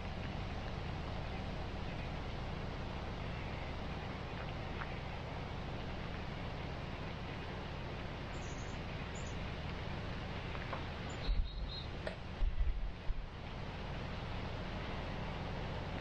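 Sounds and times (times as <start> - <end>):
outdoor hiss: 0.0 - 16.0
faint high chirps: 8.3 - 9.4, 11.0 - 12.0.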